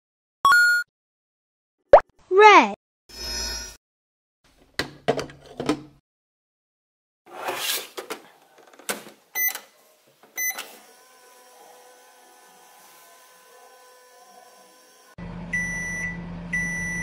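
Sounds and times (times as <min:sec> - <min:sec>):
electronic running tone: 0:15.5 - 0:17.0.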